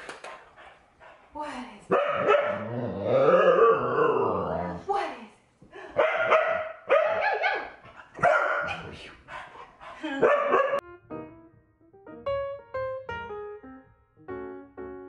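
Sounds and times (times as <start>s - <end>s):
dogs barking: 1.9s - 2.8s, 6.0s - 10.8s
piano music: 10.5s - 15.0s.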